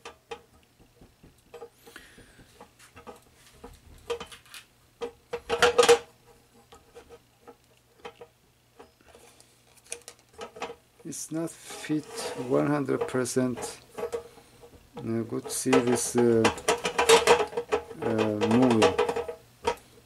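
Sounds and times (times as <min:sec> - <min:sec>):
metal grate clicking and clattering: 0:03.9 - 0:06.1, 0:15.0 - 0:19.8.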